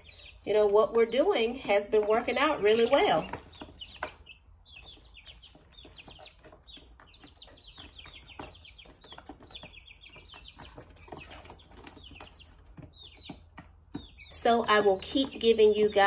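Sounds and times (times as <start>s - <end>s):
beaks pecking plastic feeder: 0.0s - 16.0s
chicks peeping: 0.0s - 16.0s.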